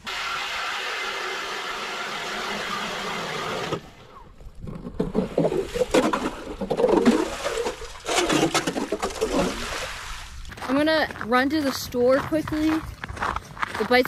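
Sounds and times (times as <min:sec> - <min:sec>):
power ice auger drilling: 0:00.0 - 0:09.7
water and slush sloshing: 0:03.3 - 0:11.4.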